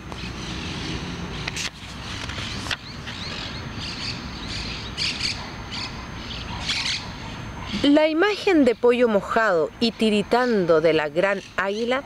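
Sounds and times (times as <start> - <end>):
birds chirping: 0.0 - 12.0
low background noise: 0.0 - 12.0.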